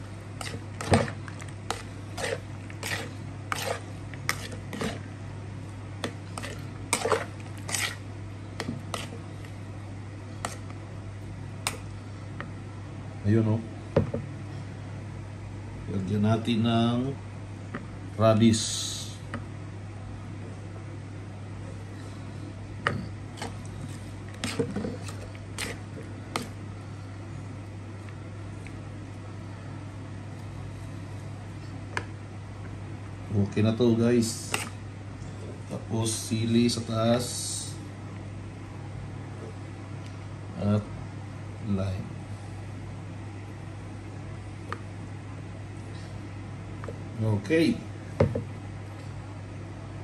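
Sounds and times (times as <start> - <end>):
wet squishing: 0.4 - 5.0, 6.0 - 8.0, 23.4 - 26.6.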